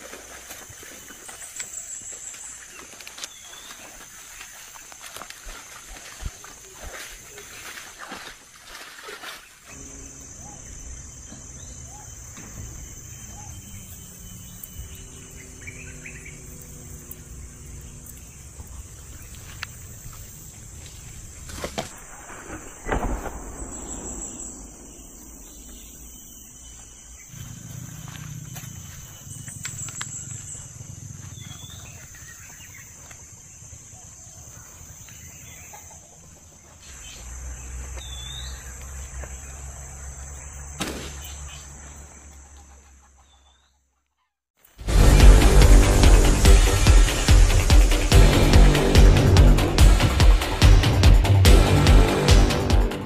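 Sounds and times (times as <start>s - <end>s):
leaves and twigs crackling: 0.0s - 9.9s, 18.2s - 30.6s
insects droning: 0.0s - 43.3s, 44.6s - 53.0s.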